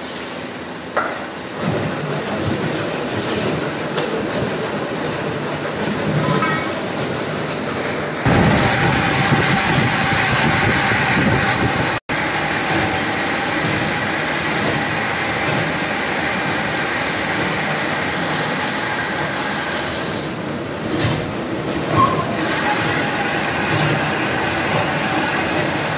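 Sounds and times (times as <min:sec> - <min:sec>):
milling machine cutting metal: 0:08.3 - 0:20.3, 0:21.8 - 0:25.9.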